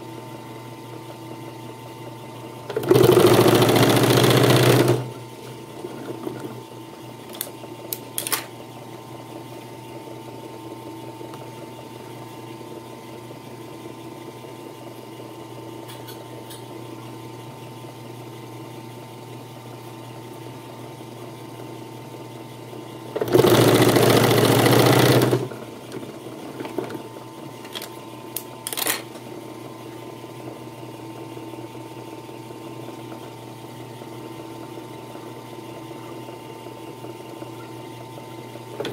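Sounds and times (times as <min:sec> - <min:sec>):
sewing machine motor humming: 0:02.6 - 0:06.6, 0:23.1 - 0:27.0
sewing machine stitching: 0:02.7 - 0:05.2, 0:23.1 - 0:26.0.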